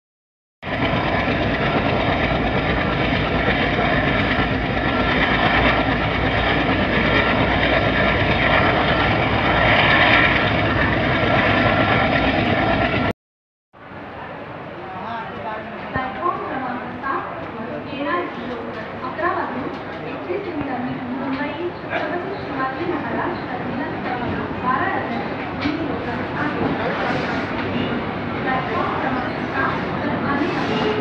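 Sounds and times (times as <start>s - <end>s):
train wheels rumbling on rails: 0.6s - 13.1s, 15.4s - 31.0s.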